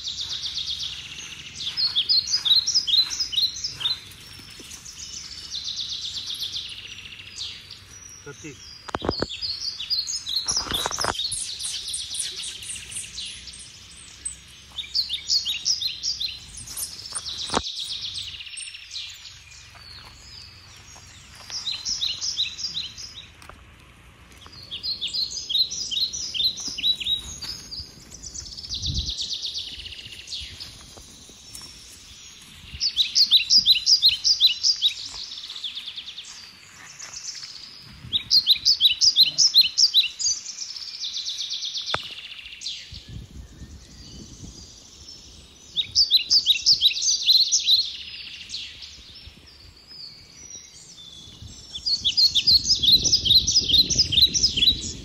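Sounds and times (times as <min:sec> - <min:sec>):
birds chirping rapidly: 0:00.0 - 0:55.0.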